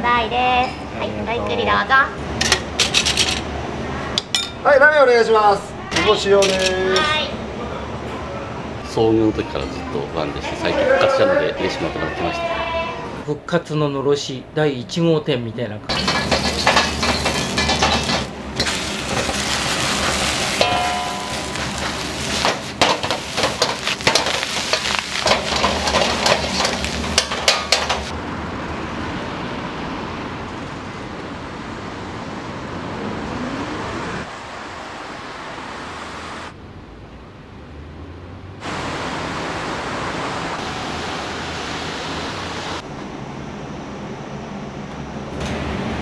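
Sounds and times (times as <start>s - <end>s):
steady outdoor noise: 0.0s - 46.0s
utensils and bowls clattering: 2.4s - 3.5s, 6.0s - 7.1s, 15.9s - 28.1s.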